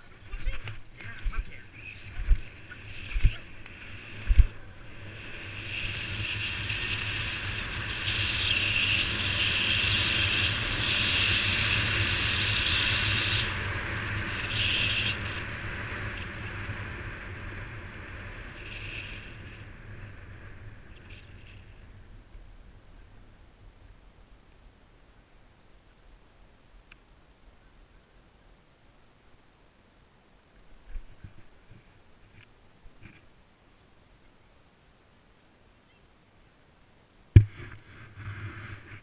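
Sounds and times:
wind over microphone: 0:00.0 - 0:23.2
skateboard wheels rolling on asphalt: 0:00.0 - 0:24.7.

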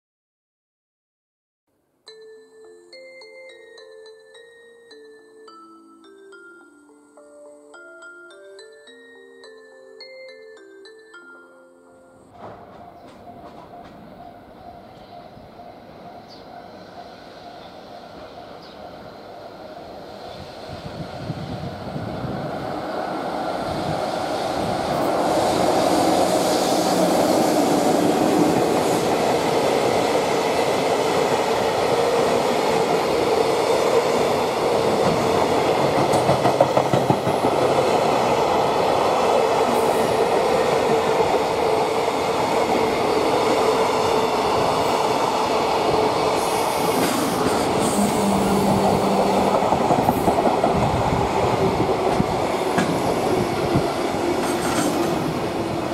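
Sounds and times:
train wheels whining: 0:12.3 - 0:55.9
freight train wheels clattering: 0:12.4 - 0:14.3, 0:34.4 - 0:38.6, 0:45.8 - 0:55.4.

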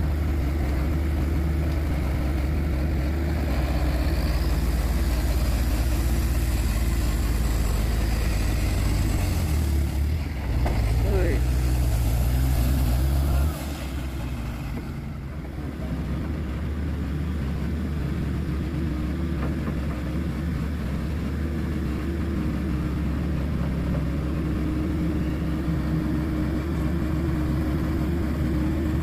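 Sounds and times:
diesel truck engine running: 0:00.0 - 0:29.0.

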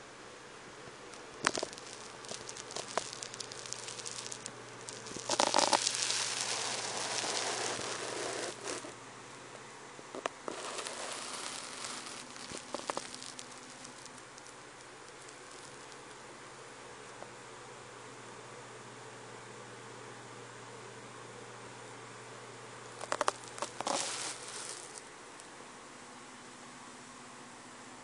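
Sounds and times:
rustling and crackling: 0:01.1 - 0:09.0, 0:10.2 - 0:16.2, 0:23.0 - 0:25.6.

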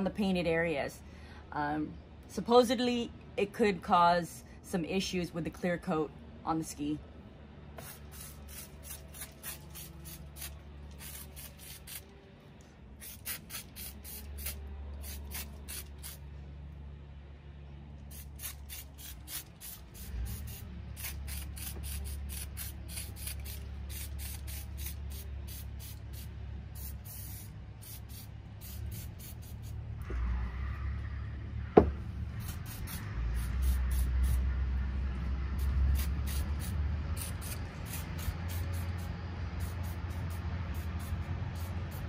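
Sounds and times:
aerosol spray hissing: 0:18.1 - 0:29.8.

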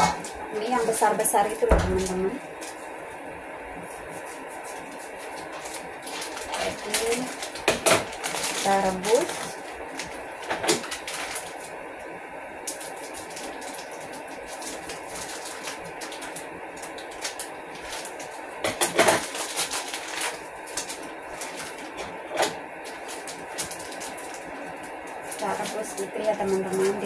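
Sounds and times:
gas burner hissing: 0:00.0 - 0:27.0
scissors snipping plastic packet: 0:05.2 - 0:11.7, 0:12.7 - 0:24.4.

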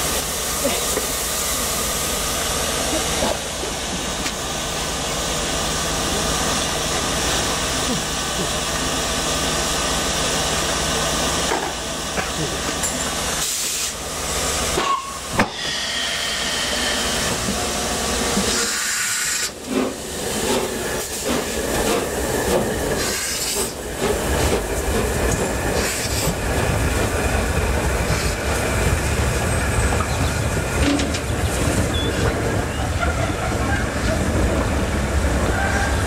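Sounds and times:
train rumbling on rails: 0:00.0 - 0:36.0
hiss of steam: 0:13.2 - 0:23.8, 0:25.7 - 0:26.4.

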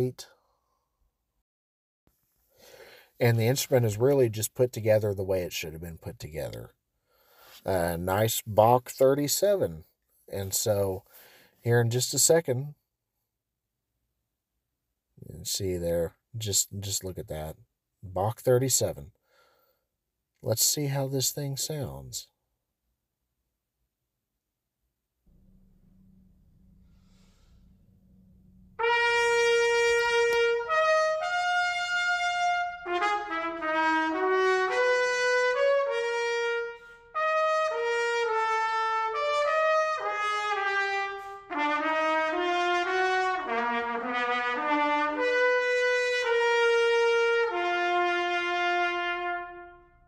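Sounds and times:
faint hum: 0:25.3 - 0:29.4
trumpet playing melody: 0:26.6 - 0:50.0.

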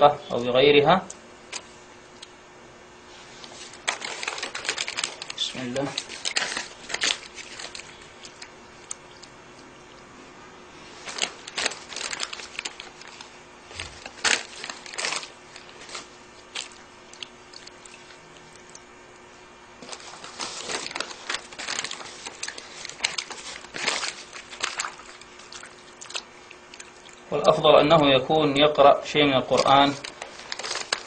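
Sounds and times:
wet paper crumpled in water: 0:03.2 - 0:08.9, 0:10.8 - 0:18.7, 0:19.8 - 0:27.3, 0:29.5 - 0:31.0.

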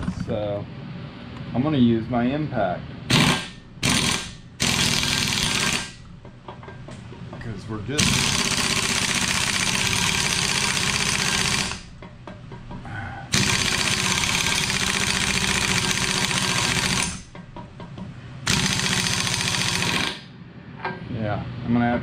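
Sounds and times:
pneumatic impact wrench hammering: 0:03.1 - 0:06.1, 0:08.0 - 0:12.0, 0:13.3 - 0:17.5, 0:18.4 - 0:20.3.

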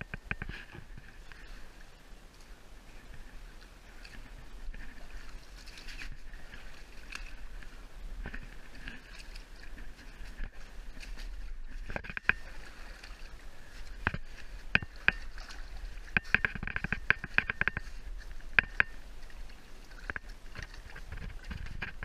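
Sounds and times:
sharp clicks and knocks: 0:00.0 - 0:00.8, 0:11.8 - 0:12.5, 0:16.1 - 0:19.0
water sloshing: 0:00.0 - 0:22.0.

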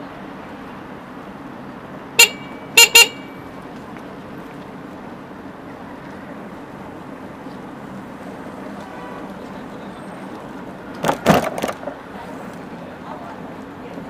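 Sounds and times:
street traffic noise: 0:00.0 - 0:14.0
vehicle horn toots: 0:02.2 - 0:03.5, 0:08.8 - 0:09.4.

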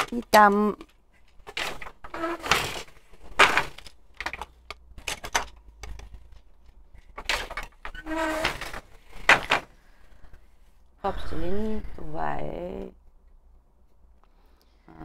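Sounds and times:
wooden loom knocking and clacking: 0:00.0 - 0:09.7.

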